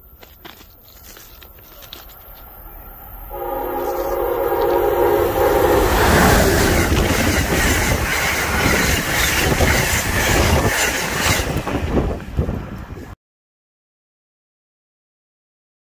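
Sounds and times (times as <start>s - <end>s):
train rumbling past on rails: 1.8s - 13.2s
train horn: 3.3s - 8.0s.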